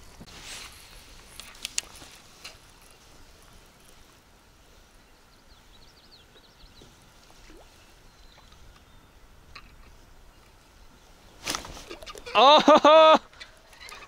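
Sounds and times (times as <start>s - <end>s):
lake ambience: 0.0s - 14.0s
faint bird chirps: 4.8s - 11.1s.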